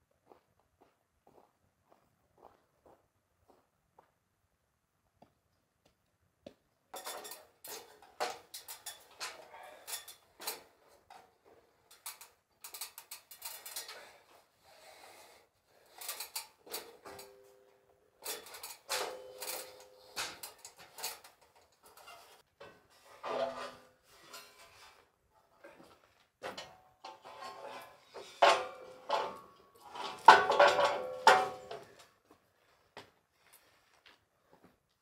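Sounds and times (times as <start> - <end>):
metal clanking on ladder: 7.0 - 11.2, 18.2 - 24.7, 26.4 - 32.0.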